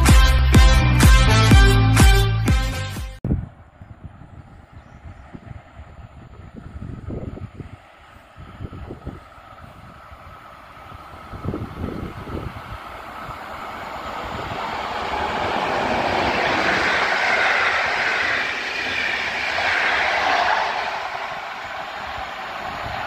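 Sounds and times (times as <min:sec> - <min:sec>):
train wheels rolling on rails: 0:05.2 - 0:23.0.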